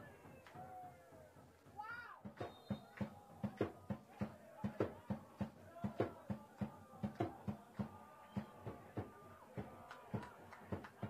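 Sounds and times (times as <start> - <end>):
sharp knocks or claps: 2.3 - 11.0.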